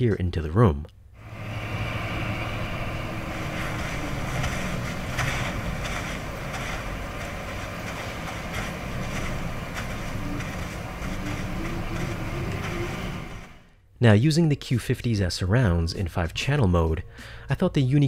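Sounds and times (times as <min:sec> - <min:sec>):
soft crunching footsteps: 0:01.2 - 0:13.7
wind ambience: 0:01.2 - 0:13.7.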